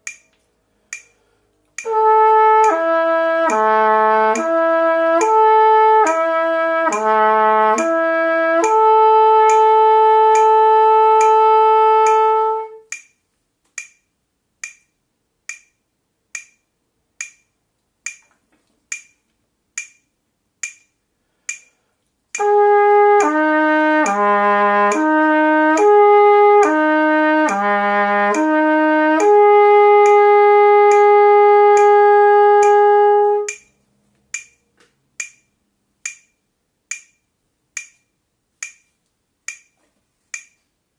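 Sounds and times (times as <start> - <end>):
metronome clicking: 0.0 - 40.7
trumpet slurring notes: 1.8 - 12.9, 22.4 - 33.6.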